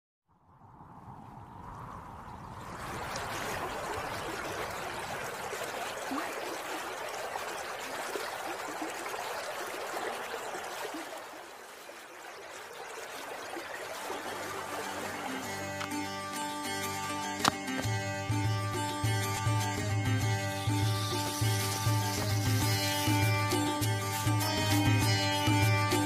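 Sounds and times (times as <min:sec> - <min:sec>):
water babbling in a stream: 0:01.7 - 0:19.8.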